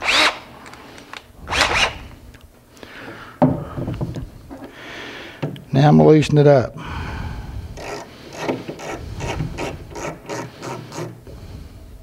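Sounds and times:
screw rasping in wood: 7.8s - 11.1s.

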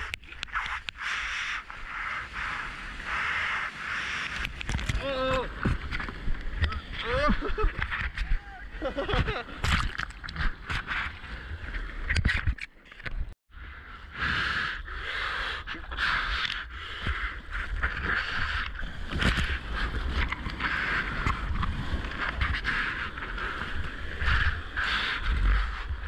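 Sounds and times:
wind buffeting camera: 0.0s - 13.4s, 16.6s - 26.0s.

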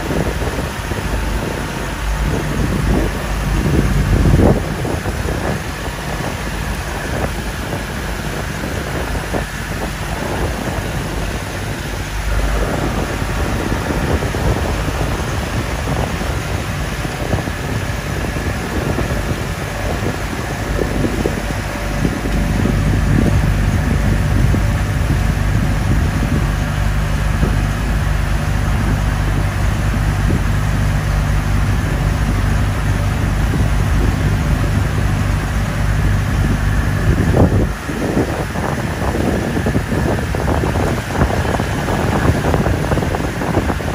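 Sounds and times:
boat engine running: 0.0s - 43.9s
water noise: 0.0s - 43.9s
wind: 0.0s - 43.9s.

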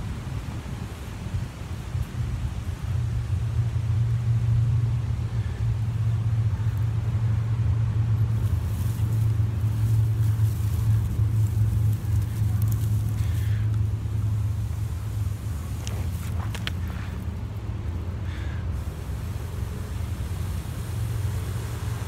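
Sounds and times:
faint clicks: 11.5s - 13.9s.

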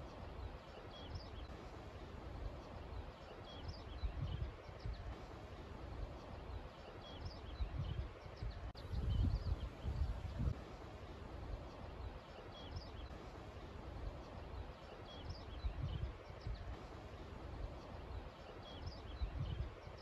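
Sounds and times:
wind gusting on microphone: 3.6s - 6.6s, 7.3s - 14.7s, 15.3s - 20.0s.

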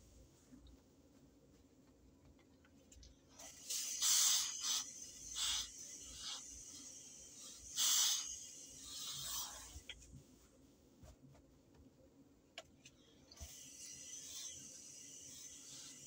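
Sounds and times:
steam iron hissing bursts: 3.4s - 9.9s, 13.4s - 16.0s.

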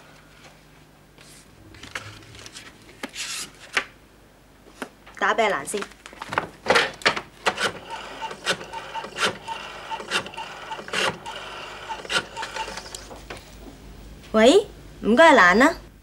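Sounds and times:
rotary telephone dial clicking: 7.6s - 13.0s.

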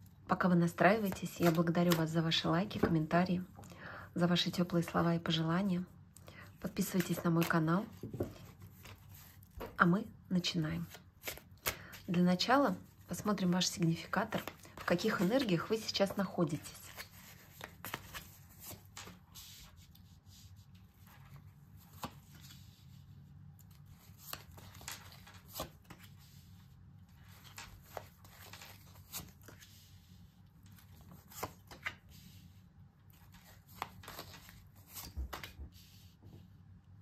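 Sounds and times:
cards being shuffled: 0.9s - 3.1s, 6.6s - 9.8s, 10.8s - 12.2s, 13.1s - 20.0s, 23.6s - 26.2s, 27.2s - 29.8s, 30.6s - 32.2s, 33.1s - 36.0s.

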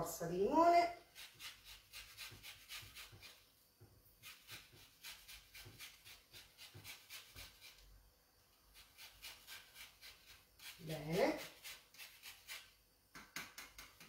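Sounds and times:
lemon peel rasping on grater: 1.0s - 3.4s, 4.2s - 7.8s, 8.7s - 12.7s.

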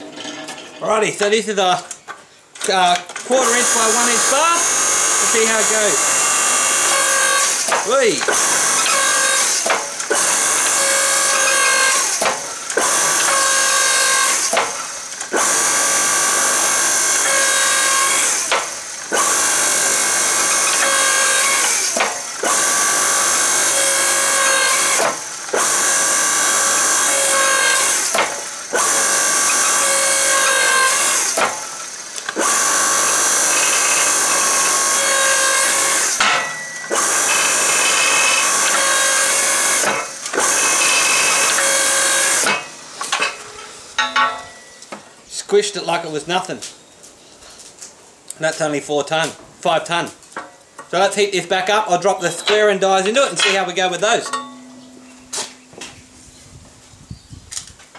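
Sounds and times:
motor and hydraulic pump running: 2.1s - 45.0s.

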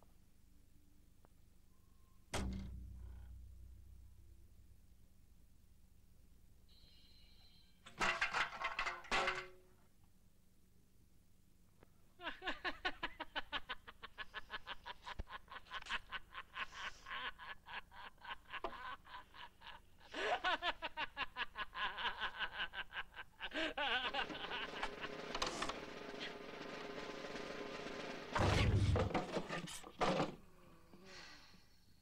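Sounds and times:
man laughing heartily: 12.2s - 25.4s.

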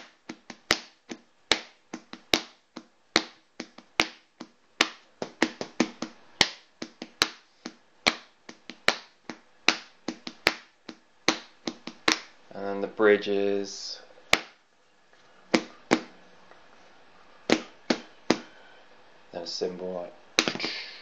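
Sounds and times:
hand-made clicking taps beat: 0.0s - 12.4s, 14.3s - 14.6s, 17.5s - 18.5s.

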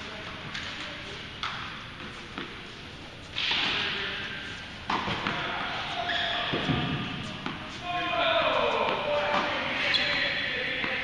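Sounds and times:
tennis ball impacts: 1.4s - 2.6s, 4.8s - 5.8s, 6.4s - 7.7s.

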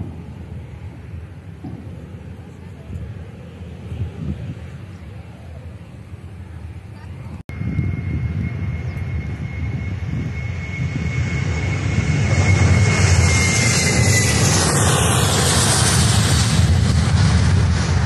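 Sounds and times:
jet engines at takeoff thrust: 0.0s - 18.0s
high whine: 7.5s - 18.0s.

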